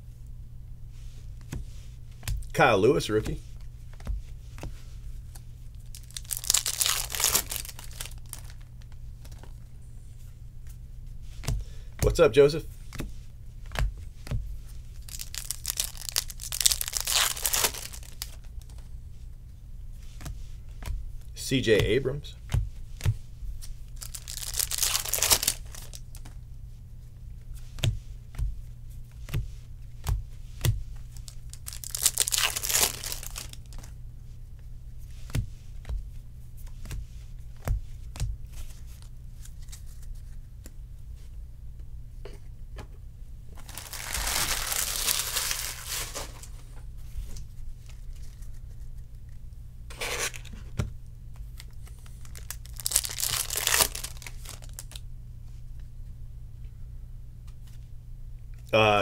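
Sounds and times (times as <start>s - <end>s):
foil wrappers tearing and crinkling: 5.8s - 8.6s, 15.0s - 18.5s, 23.9s - 26.2s, 31.2s - 33.9s, 43.6s - 46.6s, 51.6s - 55.0s.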